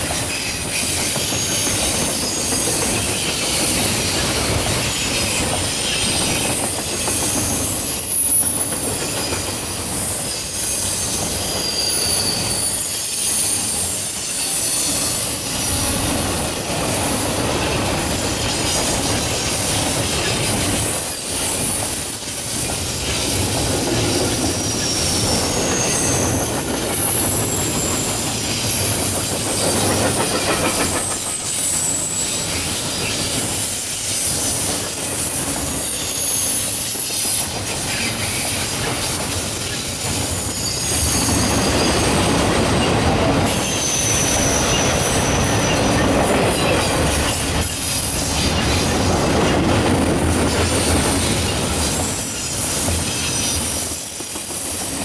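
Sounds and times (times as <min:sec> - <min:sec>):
steel wheels rolling on rail: 0:00.0 - 0:55.0
high-pitched wheel squeal: 0:10.0 - 0:19.2, 0:20.0 - 0:49.7.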